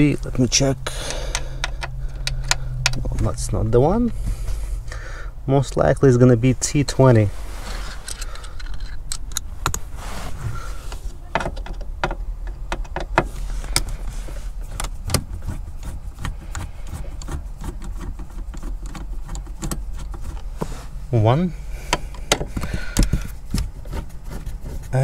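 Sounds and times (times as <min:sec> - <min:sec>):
steady low hum: 0:00.0 - 0:25.0
screwdriver clicks and metallic taps: 0:01.3 - 0:03.1.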